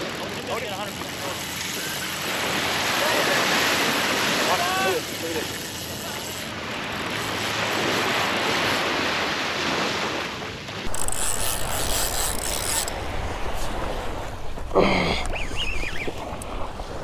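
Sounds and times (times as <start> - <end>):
surf washing on shore: 0.0 - 17.0
fishing reel whirring: 4.9 - 6.5, 10.9 - 13.2
wind rumbling on microphone: 10.8 - 17.0.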